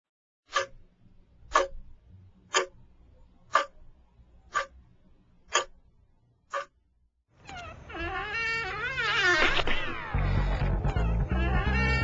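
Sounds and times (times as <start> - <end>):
steady ticking: 0.5 - 6.8.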